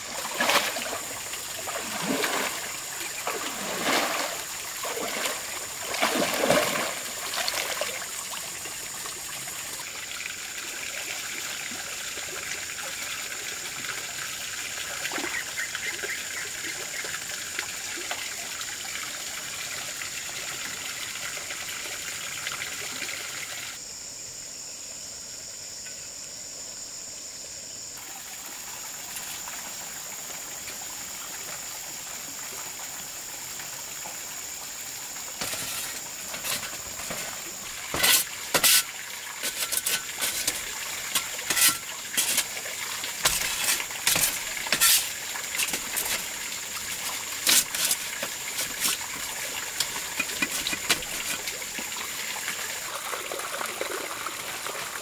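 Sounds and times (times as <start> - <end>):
water sloshing and splashing: 0.0 - 9.8, 34.4 - 55.0
water trickling: 0.0 - 23.8, 28.0 - 55.0.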